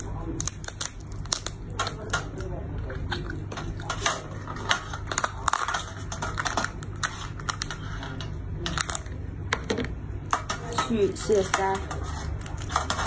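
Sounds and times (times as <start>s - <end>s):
crab shell cracking: 0.0s - 7.7s.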